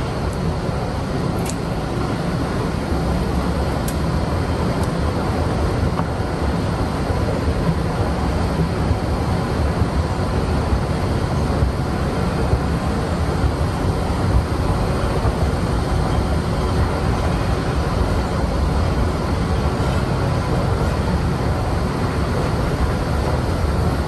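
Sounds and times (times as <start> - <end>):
steady low rumbling: 0.0 - 24.0.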